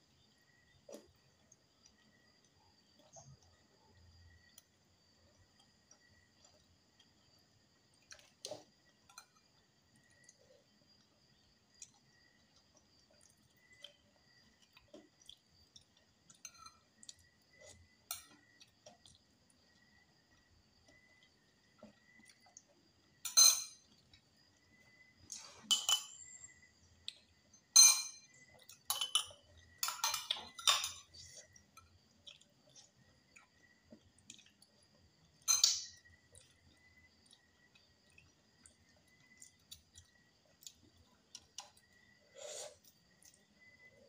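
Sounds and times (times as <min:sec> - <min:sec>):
metal spoon clinking on glass jar: 0:23.3 - 0:23.8, 0:25.7 - 0:26.4, 0:27.7 - 0:28.3, 0:28.9 - 0:31.1, 0:35.5 - 0:36.0.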